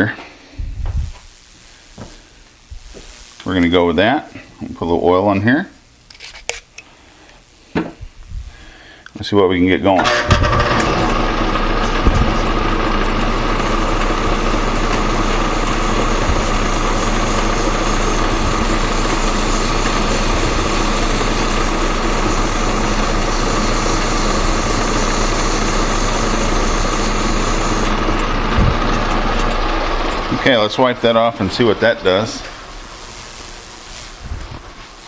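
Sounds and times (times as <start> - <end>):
sanding hiss: 0.0 - 4.4, 11.6 - 35.0
metal lathe humming: 10.0 - 35.0.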